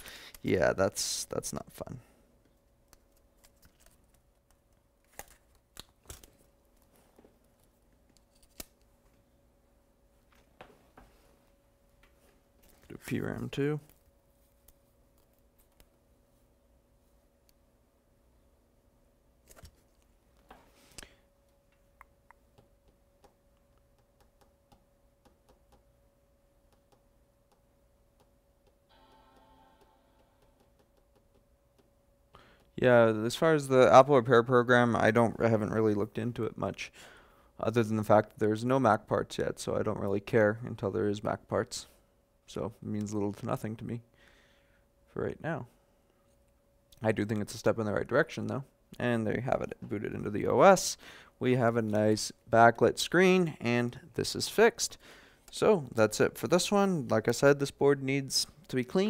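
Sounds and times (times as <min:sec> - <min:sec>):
faint steady hum: 0:00.0 - 0:59.0
faint multi-pitch tone: 0:28.9 - 0:30.8.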